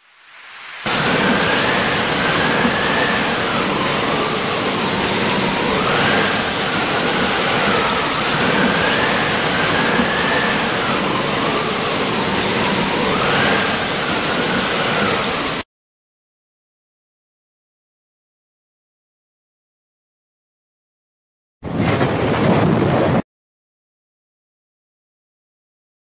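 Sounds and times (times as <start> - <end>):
heavy rain: 0.0 - 15.6
thin wavering high tone: 0.9 - 15.6.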